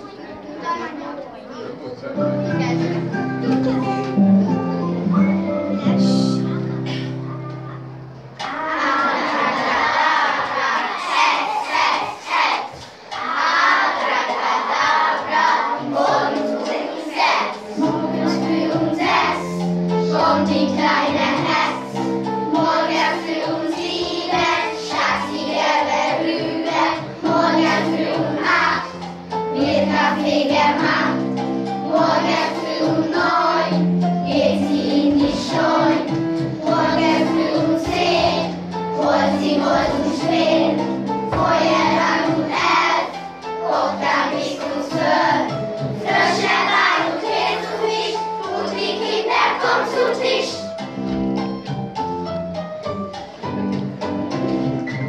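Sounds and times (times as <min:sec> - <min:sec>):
held accompanying notes: 0:00.0 - 0:11.0
young children singing: 0:00.0 - 0:50.8.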